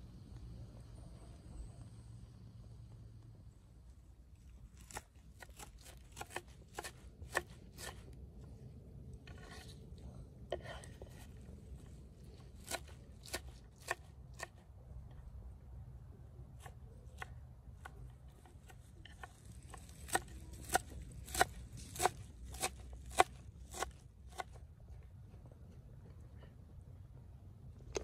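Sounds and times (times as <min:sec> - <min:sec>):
knife chopping on wooden board: 0:04.8 - 0:08.0, 0:12.6 - 0:14.6, 0:16.6 - 0:24.5.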